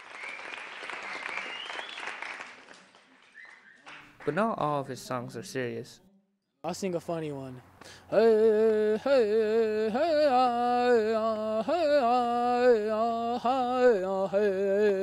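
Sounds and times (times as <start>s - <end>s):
man singing unaccompanied: 8.0s - 15.0s.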